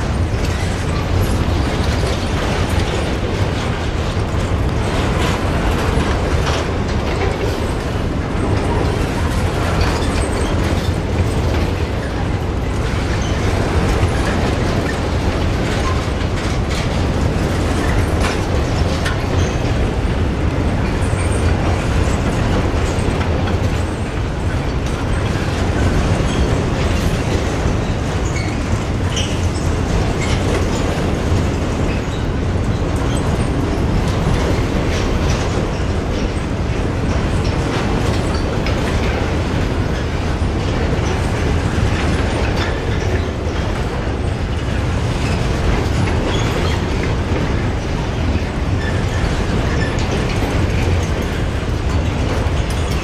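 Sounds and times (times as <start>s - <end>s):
clicks of train wheels: 0.0s - 53.0s
train wheels rumbling on rails: 0.0s - 53.0s.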